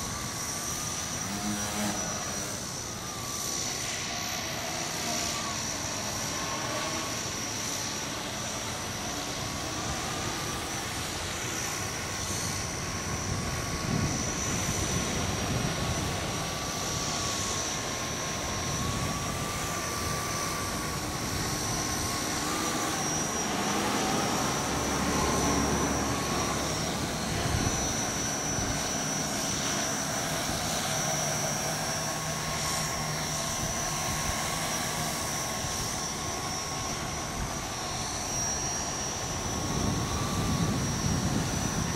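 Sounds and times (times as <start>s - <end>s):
drone propellers whining: 0.0s - 41.9s
wind rumbling on microphone: 10.8s - 41.9s.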